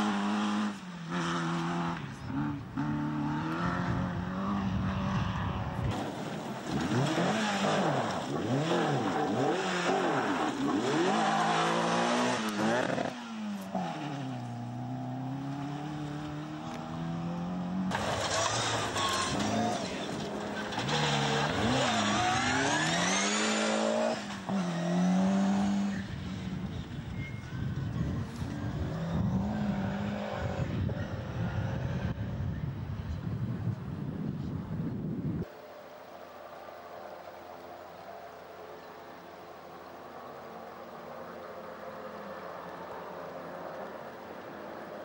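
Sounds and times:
rally cars revving past: 0.0 - 26.7, 28.6 - 32.1.

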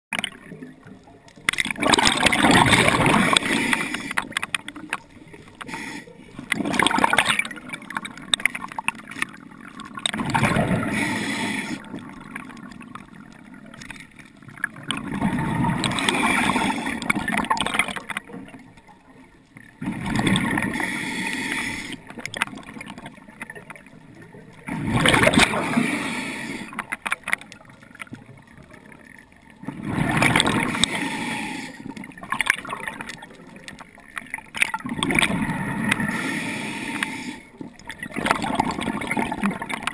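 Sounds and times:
faint water noise: 0.1 - 39.9
diver breathing through regulator: 2.0 - 4.4, 5.5 - 6.5, 10.6 - 12.0, 15.8 - 17.2, 20.5 - 22.2, 25.4 - 27.0, 30.0 - 32.1, 35.6 - 37.6.

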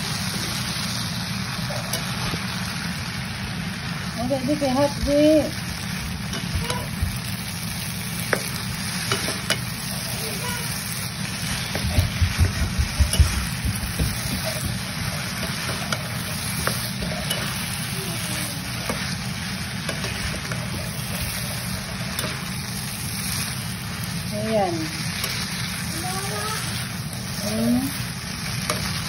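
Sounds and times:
noodles sizzling in a frying pan: 0.0 - 29.0.

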